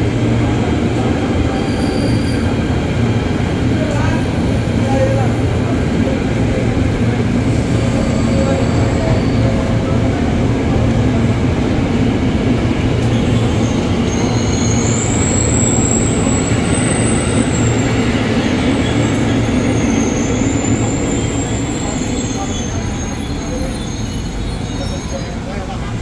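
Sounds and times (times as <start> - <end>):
electric train rumbling: 0.0 - 26.0
high-pitched train squeal: 1.0 - 2.8, 7.5 - 10.0, 13.0 - 25.8.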